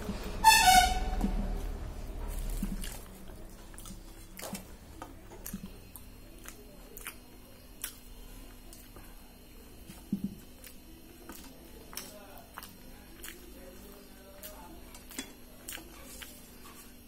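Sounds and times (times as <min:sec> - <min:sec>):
bread tearing crackle: 0:02.2 - 0:04.7
person chewing: 0:02.2 - 0:09.2, 0:09.8 - 0:17.0.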